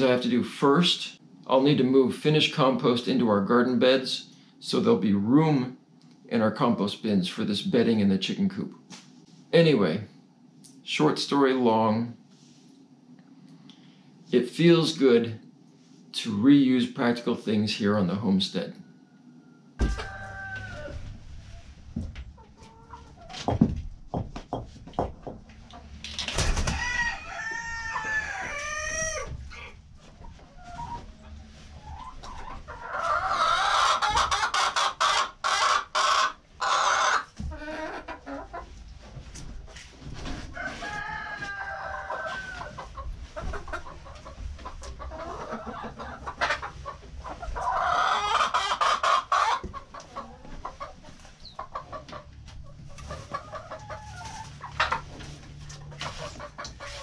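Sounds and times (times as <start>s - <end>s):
chickens clucking and calling: 18.6s - 57.0s.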